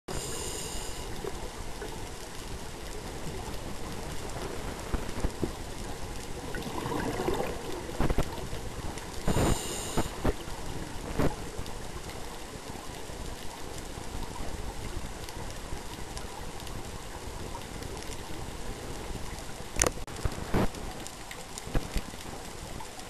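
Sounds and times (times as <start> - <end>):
steady underwater noise: 0.1 - 23.0
exhaled bubbles burbling: 6.3 - 11.4
scuba regulator hissing: 9.4 - 10.2.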